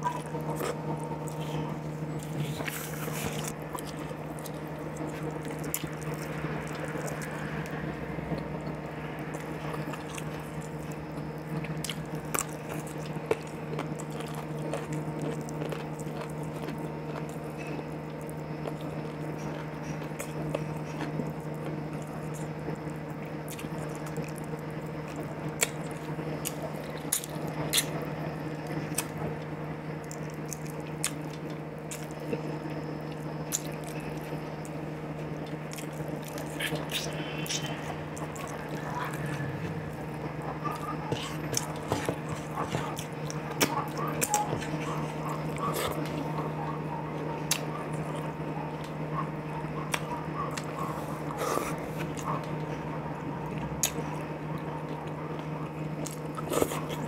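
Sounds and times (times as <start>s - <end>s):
steady low hum: 0.0s - 57.0s
man chewing and lip smacking: 9.4s - 29.4s, 30.0s - 46.6s, 47.2s - 57.0s.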